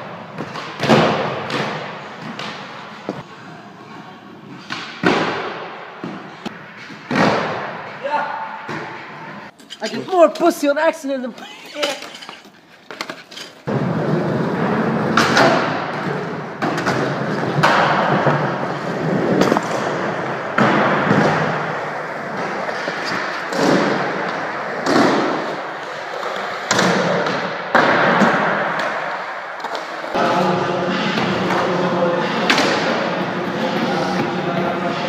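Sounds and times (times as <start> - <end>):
skateboard wheels rolling: 11.4 - 34.9.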